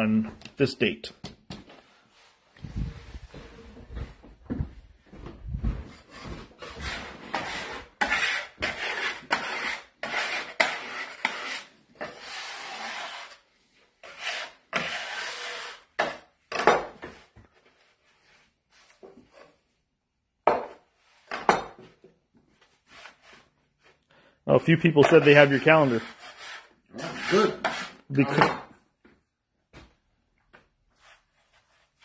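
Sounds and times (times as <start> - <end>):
scraper scraping wooden board: 6.1 - 13.4, 14.0 - 16.2, 25.0 - 28.1.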